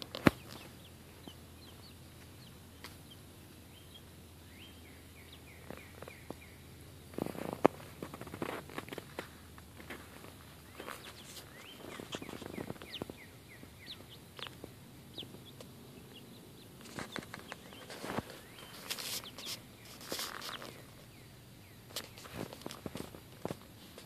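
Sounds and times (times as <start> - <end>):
chickens chirping: 0.0 - 24.0
feathers rustling: 16.8 - 21.0
claws scratching on a towel: 16.9 - 20.8.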